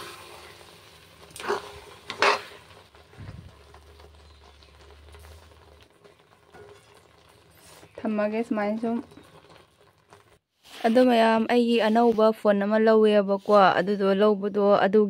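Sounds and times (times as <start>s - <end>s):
spoon scraping a pan: 0.0s - 3.0s, 4.0s - 14.4s
metal spoon stirring in a wok: 0.0s - 8.1s.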